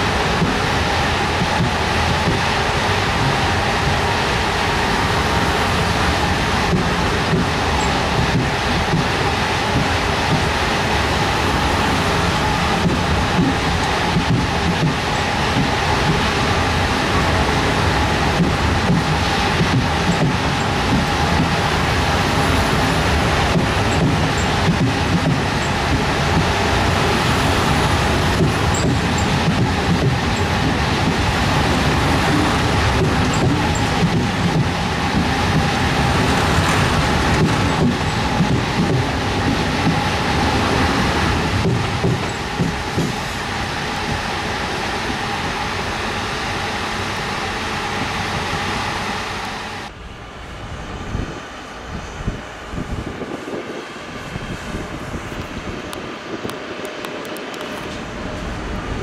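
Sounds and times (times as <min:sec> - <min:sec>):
train rumbling: 0:00.0 - 0:59.0
wheel clicks over rail joints: 0:27.7 - 0:40.4.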